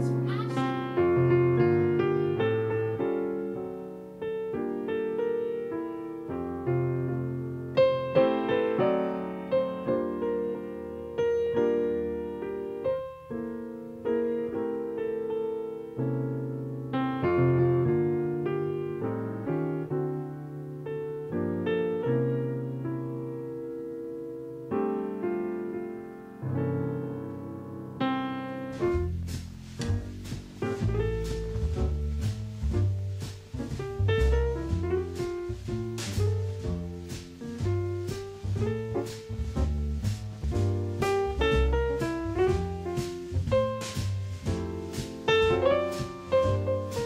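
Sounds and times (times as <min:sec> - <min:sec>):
slow solo piano: 0:00.0 - 0:47.0
music with deep bass: 0:28.8 - 0:47.0.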